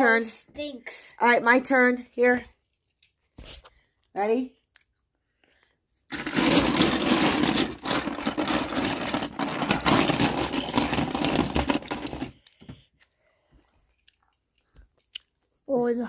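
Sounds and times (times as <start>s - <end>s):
toy cars clattering in plastic tub: 6.1s - 12.4s.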